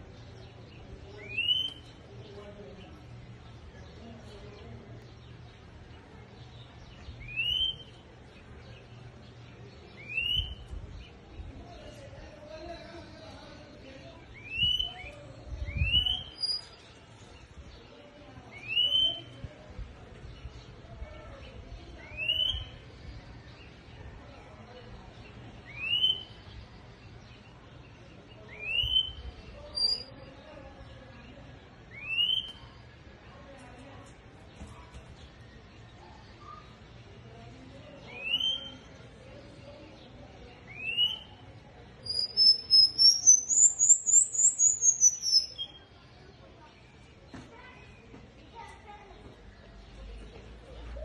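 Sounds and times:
songbird whistling: 1.2 - 1.9, 7.2 - 8.0, 10.0 - 10.6, 14.4 - 15.1, 18.6 - 19.3, 25.7 - 26.4, 28.5 - 29.2, 31.9 - 32.7, 38.1 - 38.8, 40.7 - 41.4, 42.0 - 45.9.

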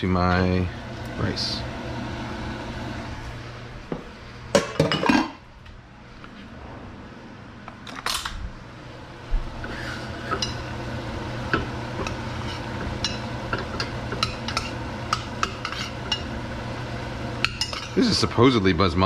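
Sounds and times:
steady low hum: 0.0 - 19.0
utensil scrape: 9.6 - 10.7, 12.0 - 16.2
utensil clinking in metal pot: 11.5 - 16.3, 17.4 - 18.0.

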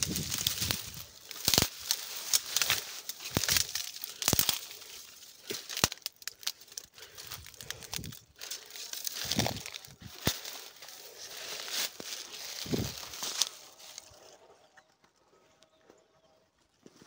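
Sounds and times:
dry weeds crackling and rustling: 0.0 - 17.0
sharp snaps of stems: 0.2 - 11.0.

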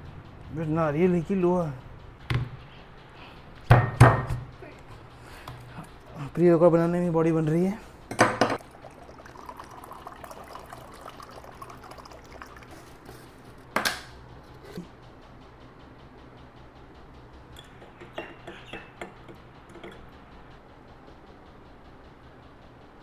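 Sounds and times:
water pouring into container: 8.6 - 13.7.

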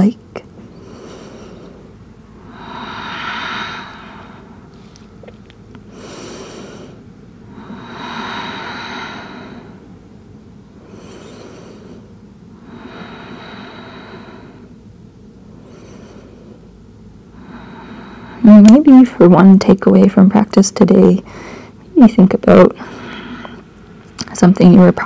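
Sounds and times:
faint low background: 0.0 - 25.0
person breathing slowly: 0.6 - 5.2, 5.9 - 10.0, 10.7 - 14.8, 15.4 - 16.7, 17.3 - 18.5, 21.2 - 21.8, 22.8 - 24.0.

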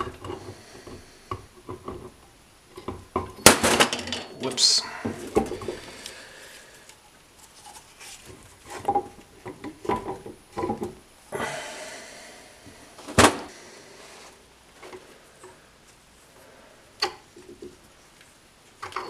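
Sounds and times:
rustling: 2.8 - 11.0, 13.0 - 16.6.

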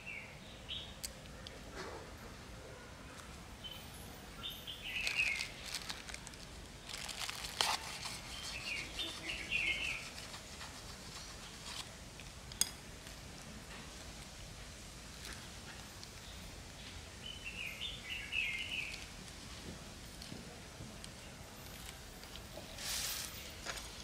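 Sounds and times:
small birds chirping: 3.6 - 11.8, 15.2 - 19.3
hands rustling dry soil: 4.4 - 12.5, 17.6 - 24.0.

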